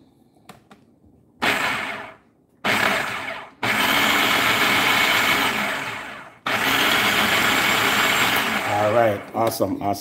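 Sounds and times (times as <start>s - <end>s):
food processor motor whirring: 1.4s - 9.3s.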